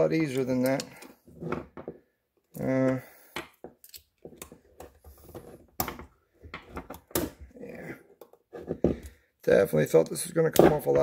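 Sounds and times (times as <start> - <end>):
metal pick clicking and scraping: 3.8 - 5.0.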